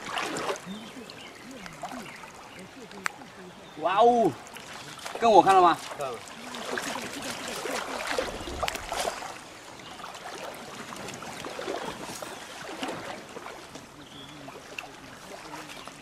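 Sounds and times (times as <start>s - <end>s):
river current flowing: 0.0s - 16.0s
water splashes: 0.0s - 16.0s.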